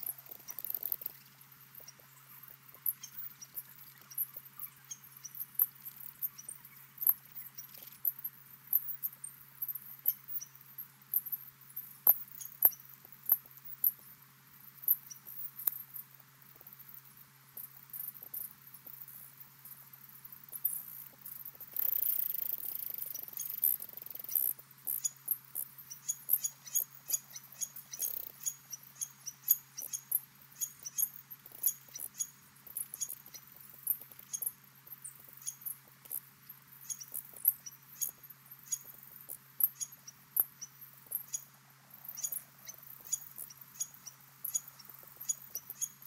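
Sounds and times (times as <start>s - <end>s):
high-pitched peeps and chirps: 0.0s - 8.2s, 21.8s - 35.7s, 36.8s - 39.0s, 39.6s - 46.0s
low electrical hum: 0.0s - 46.0s.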